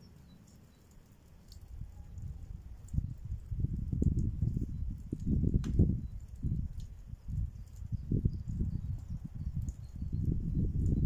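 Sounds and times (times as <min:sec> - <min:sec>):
wind buffeting microphone: 0:01.5 - 0:11.0.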